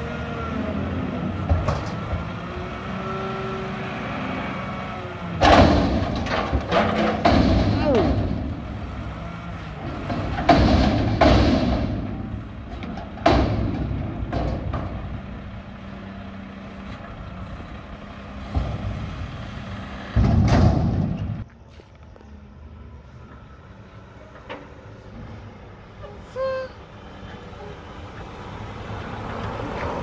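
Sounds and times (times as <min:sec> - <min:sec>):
diesel engine running: 0:00.0 - 0:30.0
loud clattering thud: 0:05.4 - 0:08.7, 0:10.0 - 0:12.4, 0:13.1 - 0:15.0, 0:20.1 - 0:21.4
steel container banging: 0:05.4 - 0:08.7, 0:10.0 - 0:12.4.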